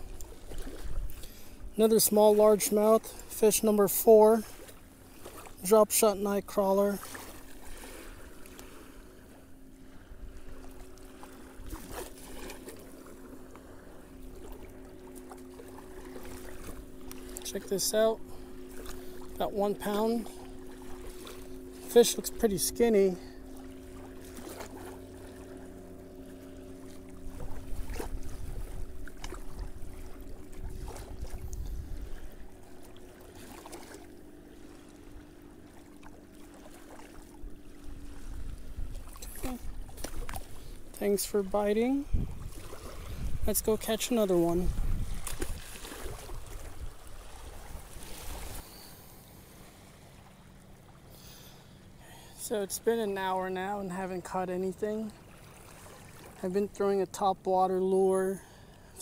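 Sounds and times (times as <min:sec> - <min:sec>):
wind rumbling on microphone: 0:00.0 - 0:01.9, 0:27.2 - 0:32.8, 0:37.9 - 0:48.6
faint steady hum: 0:00.0 - 0:59.0
small waves lapping on shore: 0:00.0 - 0:59.0
fish splashing in water: 0:45.0 - 0:48.6.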